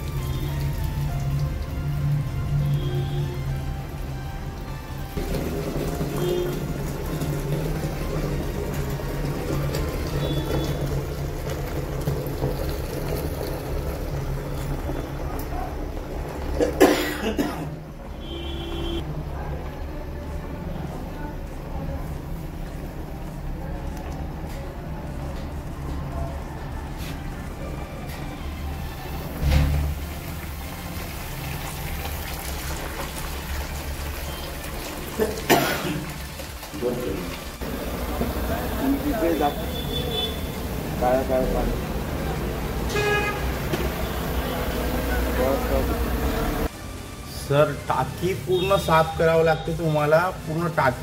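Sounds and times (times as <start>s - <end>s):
water running into a bucket: 0.0s - 17.4s, 28.4s - 51.0s.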